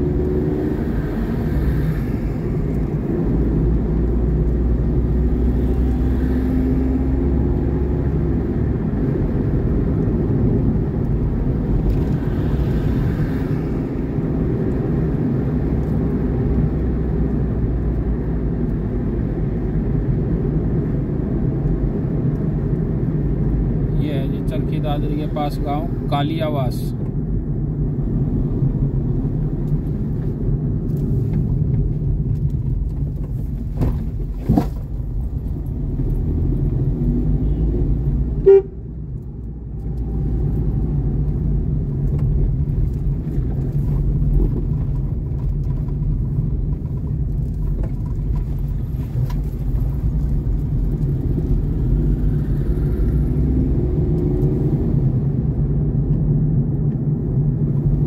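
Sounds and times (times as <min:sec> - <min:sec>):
vehicle driving rumble: 0:00.0 - 0:58.0
car horn toot: 0:38.4 - 0:38.9.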